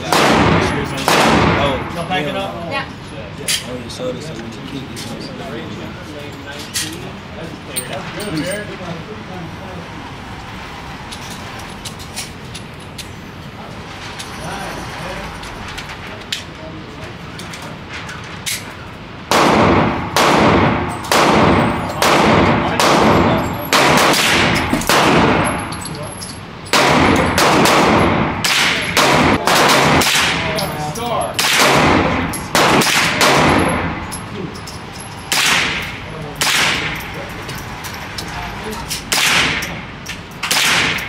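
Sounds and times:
gunshots with ringing tail: 0.0s - 1.9s, 19.3s - 25.7s, 26.7s - 30.6s, 31.4s - 34.0s.

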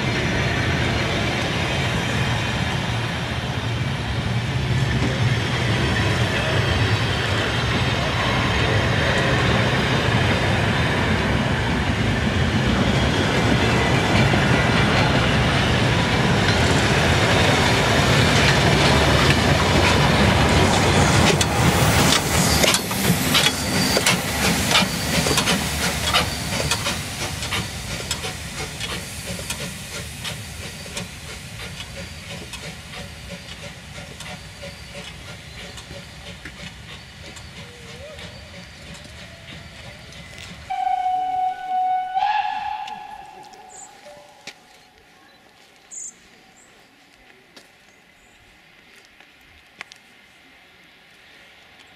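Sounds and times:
steam hissing: 0.0s - 44.8s
train wheels clattering on rails: 4.1s - 40.7s.

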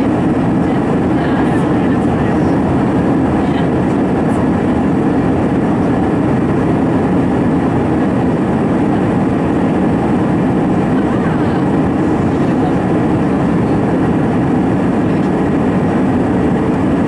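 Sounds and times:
airplane cabin noise: 0.0s - 17.0s.

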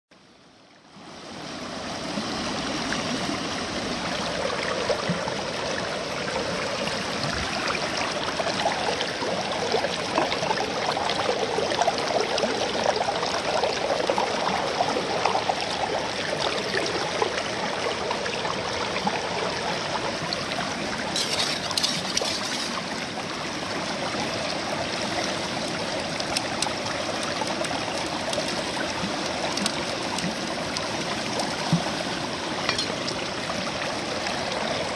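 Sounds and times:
water pouring through sluice box: 7.0s - 18.2s, 20.4s - 34.9s.

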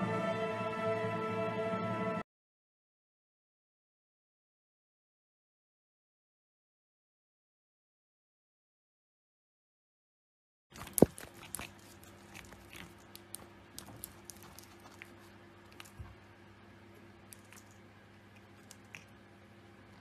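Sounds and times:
cat chewing on wire toy: 10.8s - 16.2s, 17.0s - 19.2s
faint steady hum: 10.8s - 20.0s.

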